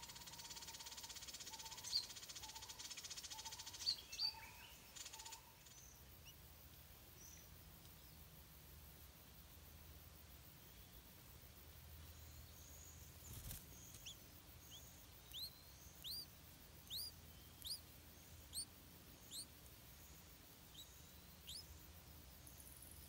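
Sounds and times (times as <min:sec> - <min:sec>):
nestling begging chirps: 0:00.0 - 0:06.4, 0:12.1 - 0:22.7.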